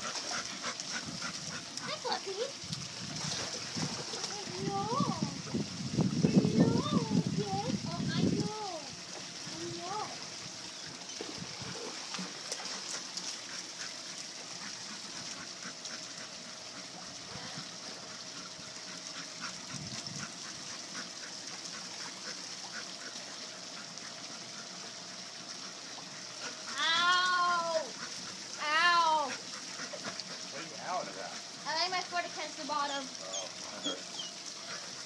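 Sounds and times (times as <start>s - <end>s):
faint pool water splashing: 0.0s - 35.0s
dog whining: 32.9s - 34.4s.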